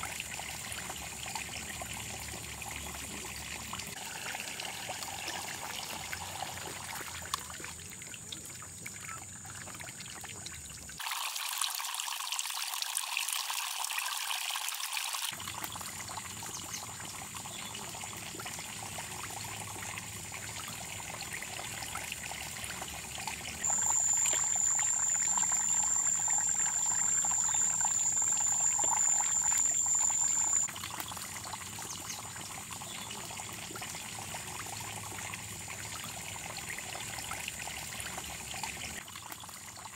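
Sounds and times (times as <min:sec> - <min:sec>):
water trickling and pouring: 0:00.0 - 0:39.9
thin high-pitched tone: 0:23.6 - 0:30.7.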